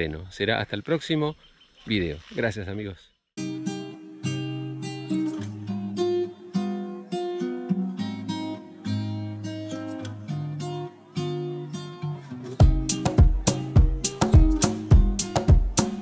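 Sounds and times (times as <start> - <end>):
acoustic guitar strumming chords: 3.4 - 16.0.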